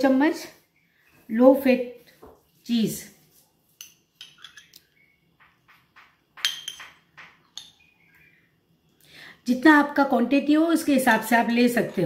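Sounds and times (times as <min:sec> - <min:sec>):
spoon scraping glass dish: 0:03.8 - 0:04.8.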